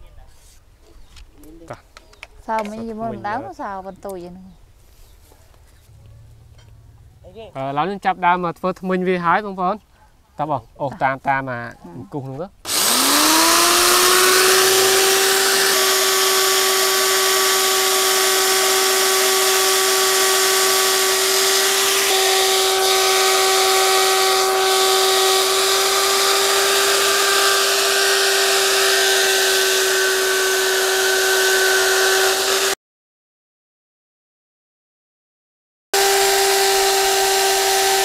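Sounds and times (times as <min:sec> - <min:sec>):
power tool motor whine: 0:12.7 - 0:32.8, 0:36.0 - 0:38.0.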